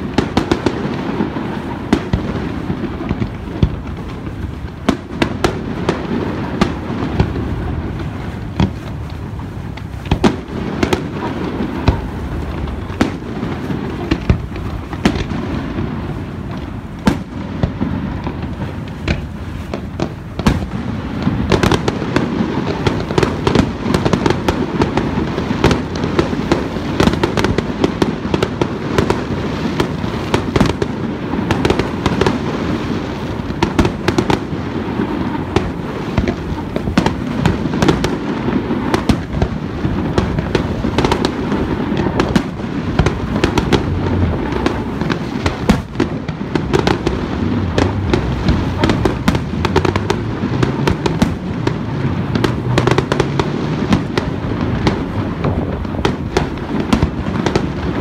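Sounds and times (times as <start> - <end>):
fireworks bursts and crackle: 0.0 - 58.0
sharp firework bangs: 0.0 - 58.0
low rumble: 46.5 - 51.6.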